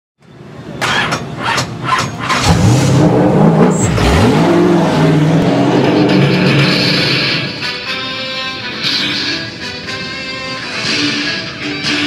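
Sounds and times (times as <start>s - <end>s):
stock car engine revving: 0.8s - 7.6s.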